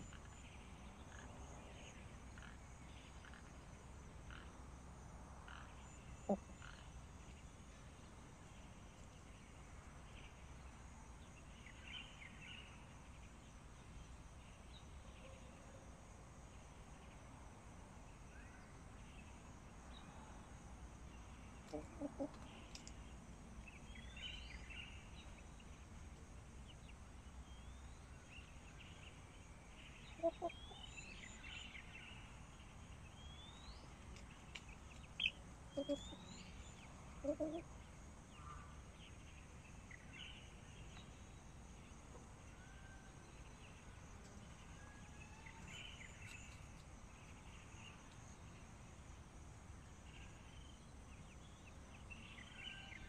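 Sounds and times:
faint steady hiss: 0:00.0 - 0:53.0
hen clucking: 0:06.2 - 0:06.5, 0:21.7 - 0:22.4, 0:30.2 - 0:30.6, 0:35.8 - 0:36.2, 0:37.2 - 0:37.6.

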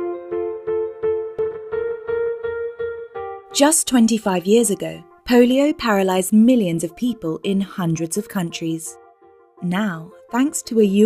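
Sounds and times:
keyboard repeated notes: 0:00.0 - 0:05.2.

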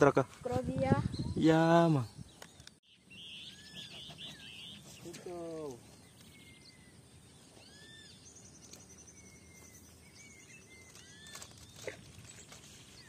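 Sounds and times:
open-air background noise: 0:00.0 - 0:13.0
high rapid bird trill: 0:02.9 - 0:05.7.

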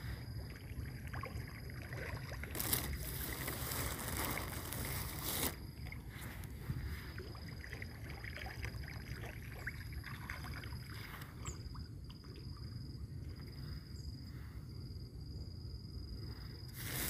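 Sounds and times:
fish splashing and slurping: 0:00.0 - 0:13.6
wind rumble on microphone: 0:03.2 - 0:08.2.

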